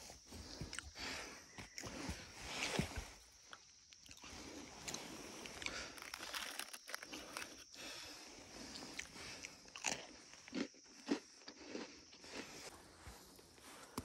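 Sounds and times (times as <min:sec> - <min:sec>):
crunchy snack chewing: 0:03.5 - 0:12.7.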